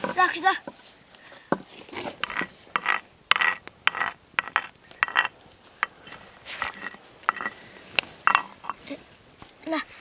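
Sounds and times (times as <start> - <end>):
rasping scraping strokes: 1.8 - 8.8.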